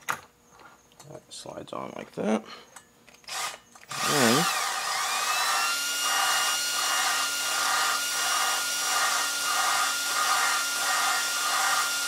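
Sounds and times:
drill motor whine: 3.2s - 12.0s.

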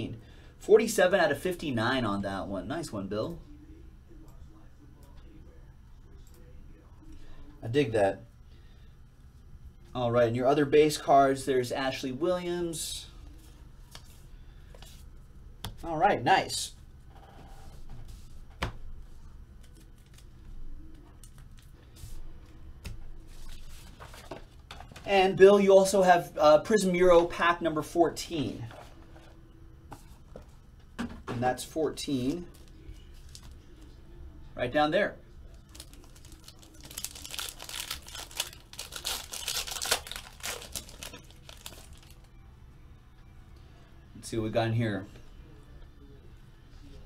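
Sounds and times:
handling noises at a desk: 17.0s - 25.1s, 28.6s - 31.4s, 32.4s - 34.0s, 35.5s - 42.3s
foil wrapper tearing and crinkling: 35.6s - 42.2s.

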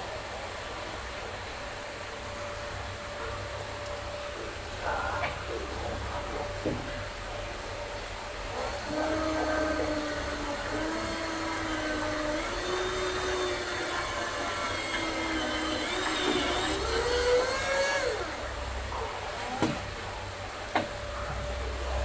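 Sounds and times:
cordless drill driving a screw: 8.6s - 18.4s.

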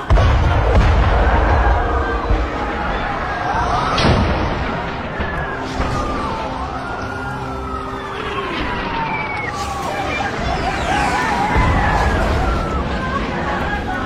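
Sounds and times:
explosion blast: 0.0s - 6.5s
wailing siren tones: 1.0s - 14.0s.

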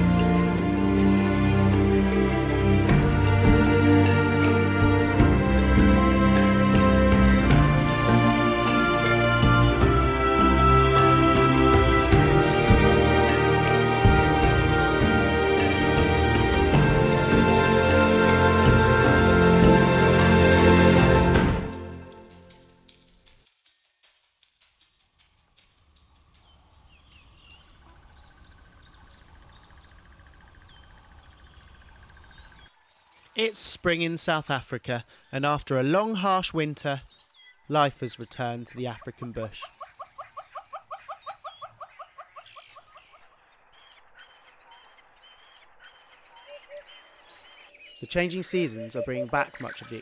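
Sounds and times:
insect trilling: 25.8s - 34.0s, 36.3s - 37.6s, 39.5s - 43.3s, 48.0s - 50.0s
birds chirping: 25.8s - 50.0s
faint high chirps: 32.4s - 33.9s, 36.4s - 37.7s.

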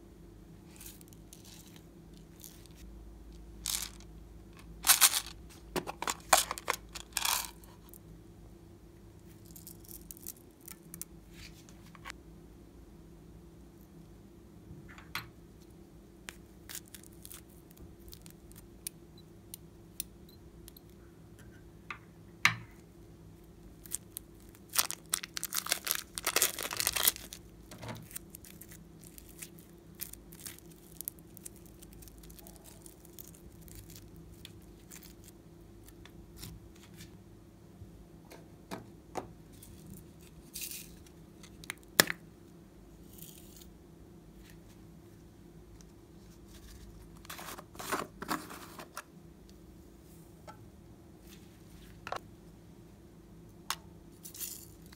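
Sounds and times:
foam slime clicking and crackling: 23.8s - 27.4s, 28.0s - 35.3s.

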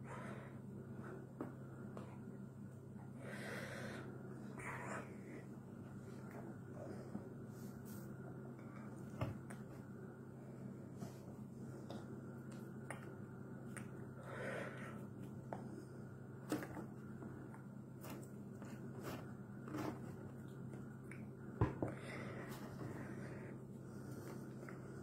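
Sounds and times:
low room hum: 0.0s - 25.0s
faint breaths: 3.0s - 9.0s, 21.9s - 25.0s.

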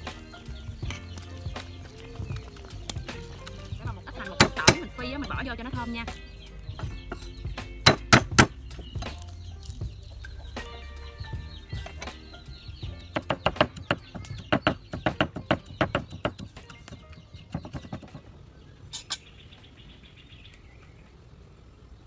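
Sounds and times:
faint bird chirps: 0.0s - 22.0s
cleaver chopping on wooden board: 4.4s - 4.9s, 7.8s - 9.3s, 13.0s - 18.2s.

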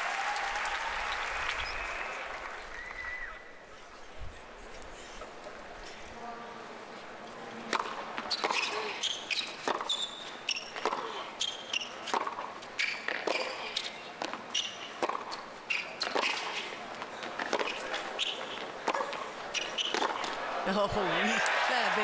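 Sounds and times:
tennis shoes squeaking: 7.6s - 20.5s
tennis ball bounces: 7.7s - 15.4s, 16.0s - 20.4s.

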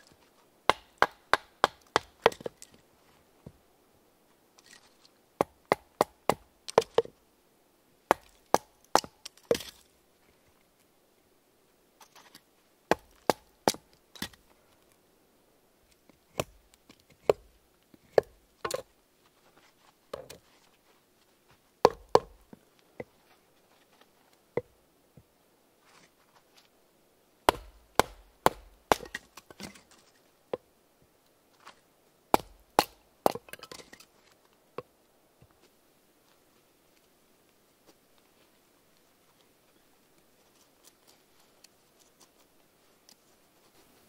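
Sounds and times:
knife chopping kindling on wood: 27.5s - 29.2s.

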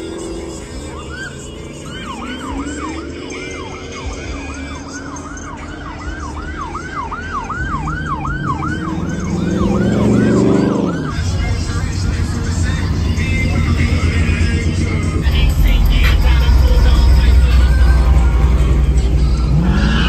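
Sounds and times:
siren yelping: 0.0s - 15.2s, 16.1s - 20.0s
car engine revving: 0.0s - 20.0s.

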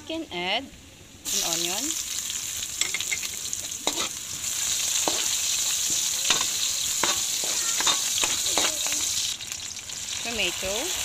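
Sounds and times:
onions sizzling in hot oil: 1.2s - 11.0s
metal spoon scraping a pan: 2.8s - 9.1s.

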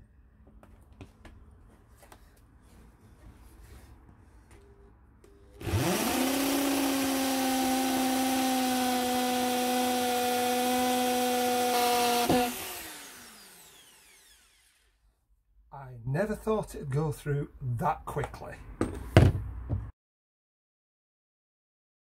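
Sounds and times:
power drill cutting with hole saw: 5.6s - 15.0s.

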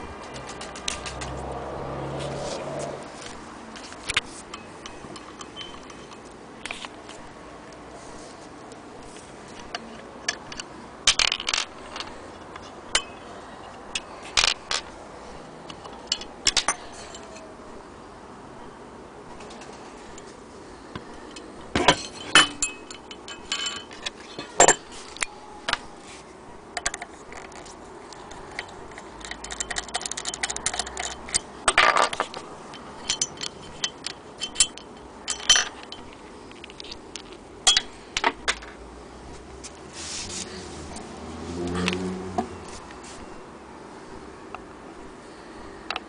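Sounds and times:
metal parts clinking and tapping: 3.2s - 7.0s, 9.6s - 13.3s, 13.9s - 15.0s, 15.7s - 17.5s, 21.0s - 25.8s, 26.8s - 38.8s.

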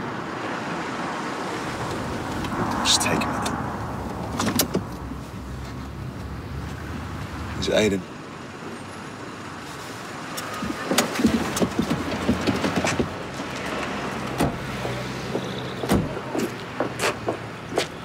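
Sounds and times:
traffic engine hum: 0.0s - 18.0s
sharp knocks or steps: 14.3s - 18.0s.

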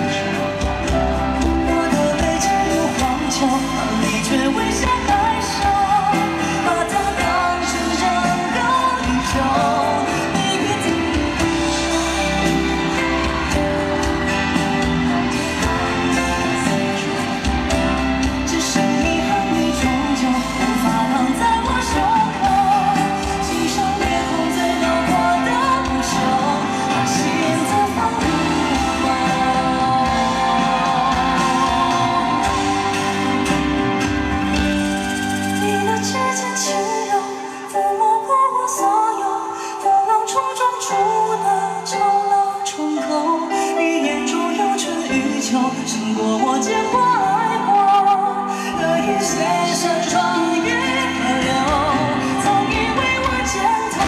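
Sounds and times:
man singing: 0.0s - 34.7s, 40.1s - 54.0s
live pop band: 0.0s - 54.0s.

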